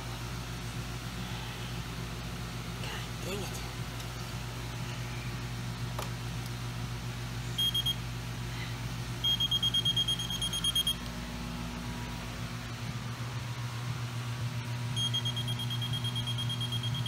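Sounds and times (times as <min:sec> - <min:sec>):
electronic beeps: 0:07.6 - 0:08.0, 0:09.2 - 0:11.0, 0:15.0 - 0:17.0.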